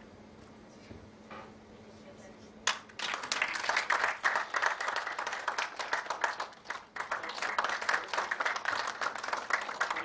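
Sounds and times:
audience applauding: 0:02.7 - 0:10.0.

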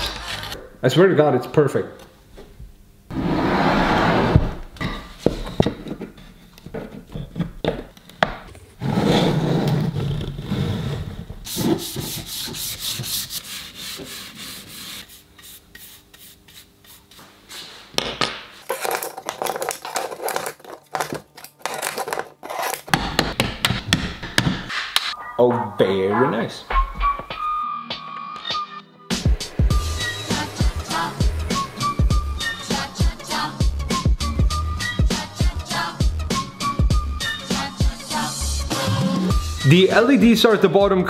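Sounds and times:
knocks and clicks of parts: 0:22.9 - 0:25.1.

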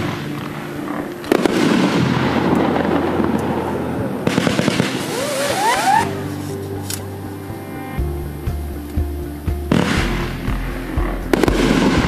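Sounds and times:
firework crackling: 0:00.0 - 0:06.8
rising firework whistles: 0:04.4 - 0:06.2.

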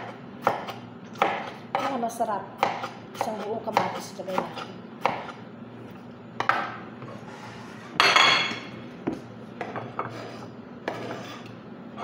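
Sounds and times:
knife on plastic cutting board: 0:09.9 - 0:11.5.

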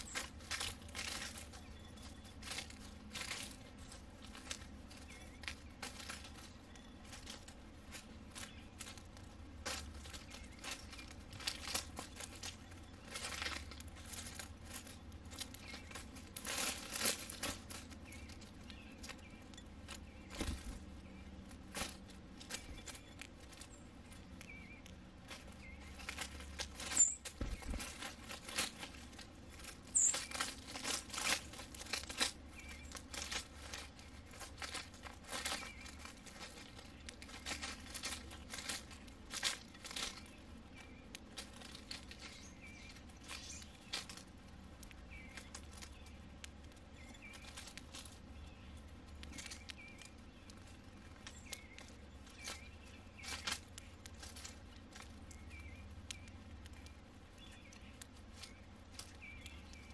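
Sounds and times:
sparrow chirps: 0:00.0 - 0:04.0, 0:04.6 - 0:07.2, 0:08.2 - 0:09.1, 0:09.9 - 0:16.2, 0:17.8 - 0:28.0, 0:29.4 - 0:30.6, 0:32.4 - 0:34.4, 0:35.4 - 0:39.0, 0:42.1 - 0:47.6, 0:48.2 - 0:54.0, 0:54.7 - 0:59.9
leaves and seed hulls rustling: 0:00.0 - 0:59.9.

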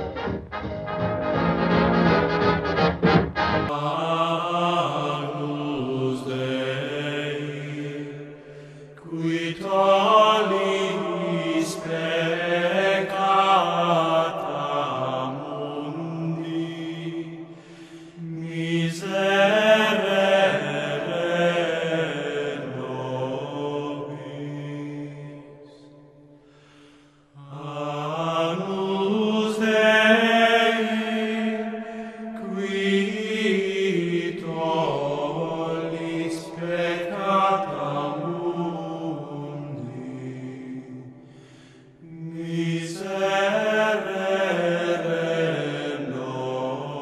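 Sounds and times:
steady low drone note: 0:00.0 - 0:03.7
slow chant-like singing: 0:03.7 - 0:47.0.

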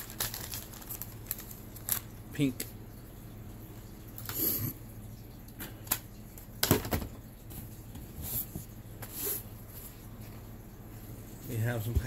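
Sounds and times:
packaging rustling: 0:00.0 - 0:02.1.

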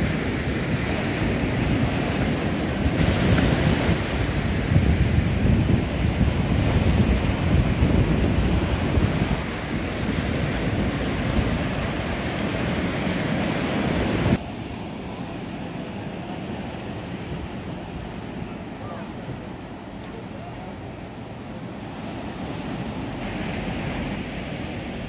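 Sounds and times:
wind buffeting microphone: 0:00.0 - 0:14.4
surf washing on shore: 0:00.0 - 0:25.0.

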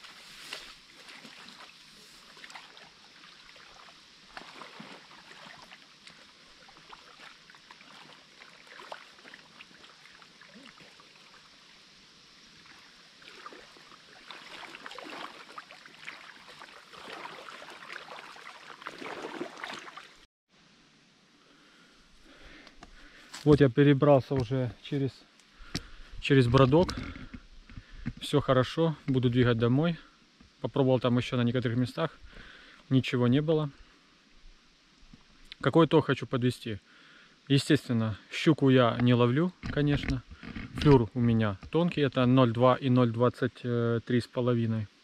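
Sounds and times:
splashing of wading through water: 0:00.0 - 0:11.7, 0:12.4 - 0:20.3.

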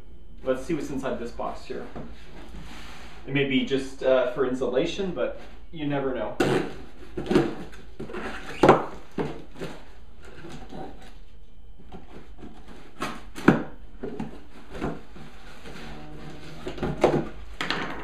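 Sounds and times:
cardboard scraping and rustling: 0:06.6 - 0:11.3, 0:14.0 - 0:17.6.

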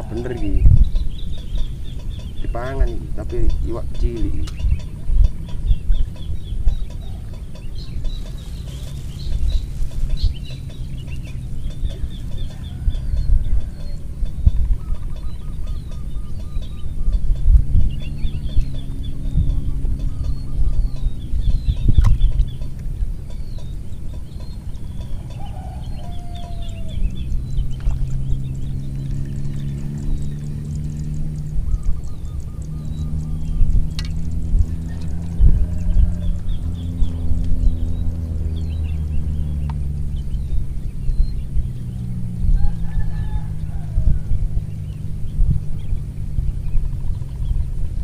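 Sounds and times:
birds chirping: 0:00.0 - 0:48.0
low steady rumble: 0:00.0 - 0:48.0
rooster crowing: 0:12.4 - 0:14.1, 0:25.1 - 0:27.1, 0:34.7 - 0:37.0, 0:42.5 - 0:44.7.

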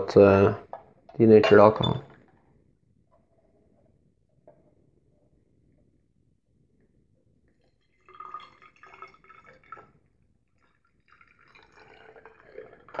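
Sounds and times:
liquid trickling into glass cylinder: 0:07.5 - 0:13.0.

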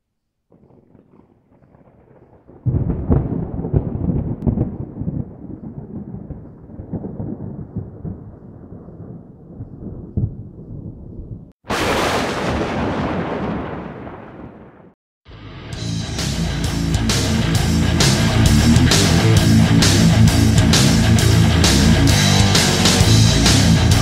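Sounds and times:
deep thunder-like rumble with crackles: 0:00.5 - 0:15.0.

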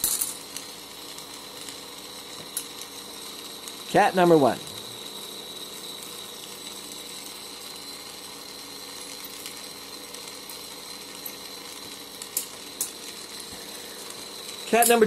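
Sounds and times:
torch flame hissing: 0:00.0 - 0:15.0.

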